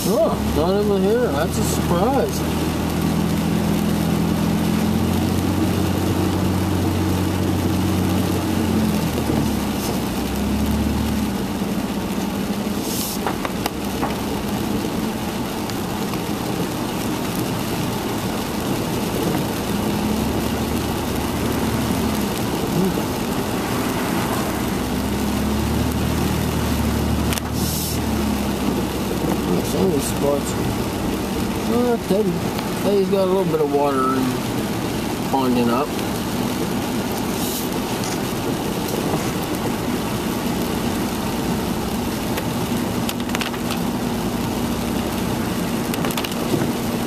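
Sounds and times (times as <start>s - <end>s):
car engine hum: 0.0s - 47.0s
tyre hiss on wet road: 0.0s - 47.0s
hissing swishes: 12.7s - 13.4s, 27.4s - 28.1s, 37.3s - 37.8s.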